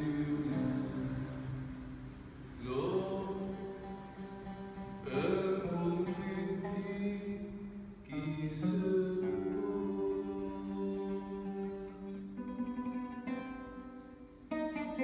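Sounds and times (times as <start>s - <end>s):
man singing chant-like notes: 0.0s - 1.5s, 2.6s - 12.7s
oud plucked: 2.7s - 15.0s.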